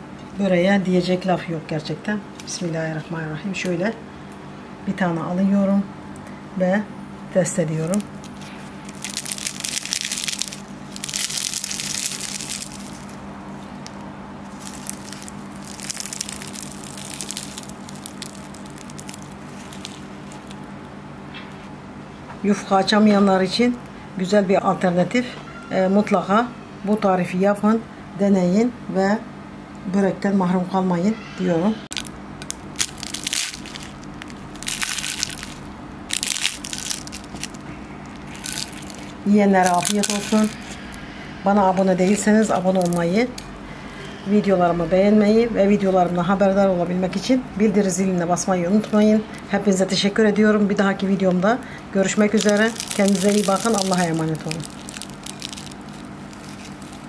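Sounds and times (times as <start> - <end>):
crisp pastry crackling: 7.4 - 20.8, 31.9 - 41.0, 41.6 - 43.5, 50.9 - 57.0.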